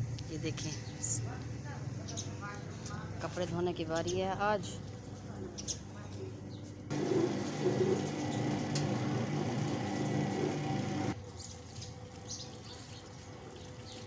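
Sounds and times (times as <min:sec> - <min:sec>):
washing machine motor hum: 0:06.2 - 0:14.0
water and clothes churning: 0:06.9 - 0:14.0.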